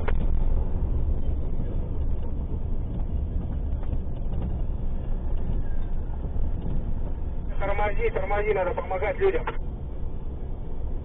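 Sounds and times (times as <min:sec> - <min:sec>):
car driving road and engine noise: 0:00.0 - 0:11.0.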